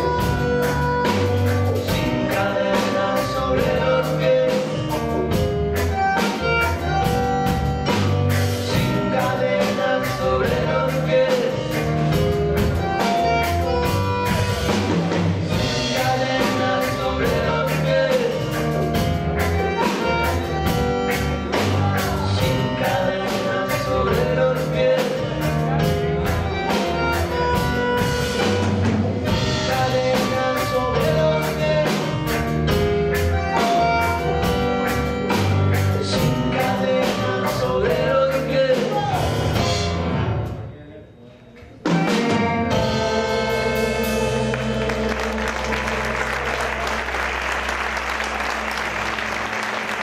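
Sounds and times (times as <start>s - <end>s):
man singing: 0.0s - 14.9s, 15.5s - 28.1s, 29.2s - 40.0s, 41.9s - 46.7s
electric guitar: 0.0s - 40.4s
drum kit beat: 0.0s - 40.7s, 41.8s - 50.0s
keyboard: 0.0s - 50.0s
bandoneon: 3.2s - 9.0s.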